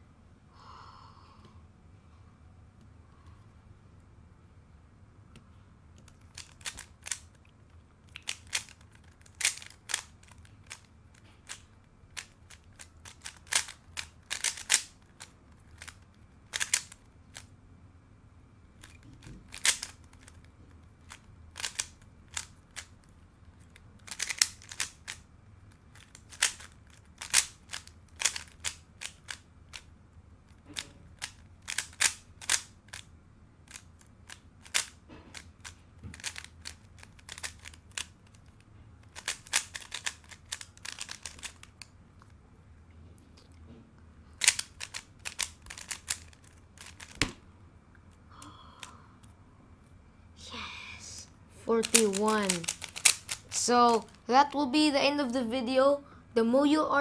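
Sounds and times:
speed cube plastic clicks: 6.0 - 17.5, 18.8 - 29.9, 30.5 - 42.3, 44.4 - 47.4, 51.7 - 54.2.

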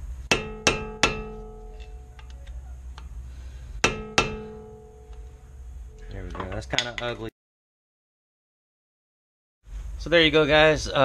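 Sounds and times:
hammer striking metal: 0.3 - 2.3, 3.8 - 7.1.

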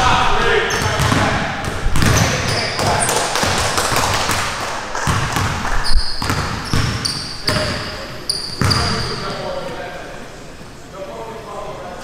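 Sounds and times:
sneaker squeaks: 0.6 - 1.2, 2.0 - 3.2, 5.0 - 9.6
basketballs bouncing on court: 0.7 - 9.2.

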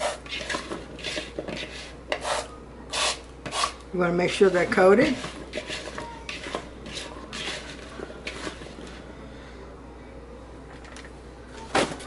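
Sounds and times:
potato chunks tossed in a bowl: 0.0 - 9.0.

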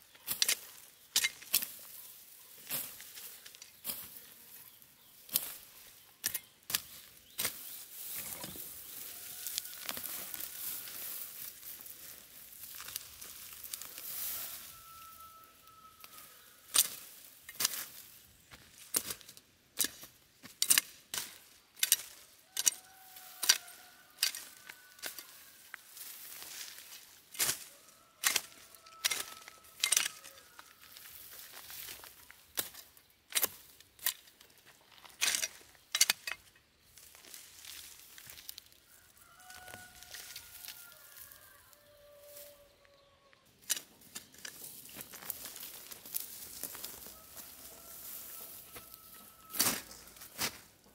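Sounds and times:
weeds rustling and snapping: 0.1 - 15.2, 16.0 - 41.3, 43.6 - 50.9
distant rooster crowing: 8.6 - 11.6, 12.7 - 17.1, 22.4 - 26.7, 27.4 - 31.5, 38.9 - 43.4, 45.4 - 50.6.

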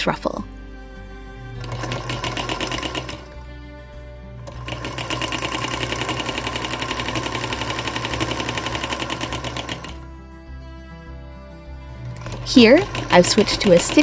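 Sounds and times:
sewing machine running fast: 1.6 - 3.4, 4.4 - 10.0, 12.0 - 14.0.

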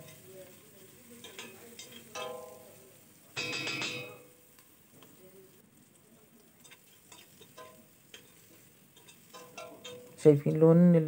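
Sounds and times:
food sizzling in pot: 0.0 - 11.0
metal spoon scraping and tapping pot: 1.2 - 2.7, 3.4 - 4.3, 6.6 - 10.2.

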